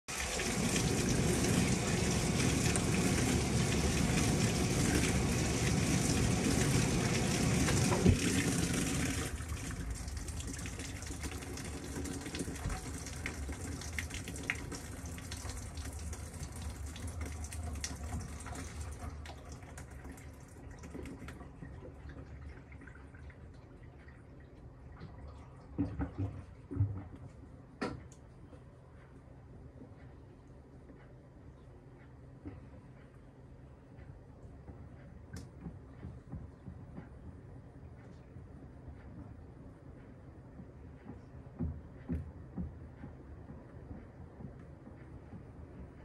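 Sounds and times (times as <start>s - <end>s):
water gushing into washing machine: 0.0s - 27.2s
water trickling and dripping: 0.1s - 27.0s.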